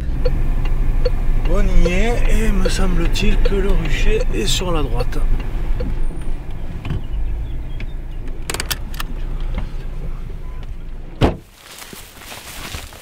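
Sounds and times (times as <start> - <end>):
low rumble inside car: 0.0 - 13.0
open-air background: 0.0 - 13.0
car door shutting: 7.7 - 9.8, 10.6 - 11.5
sharp clicks: 7.8 - 9.2.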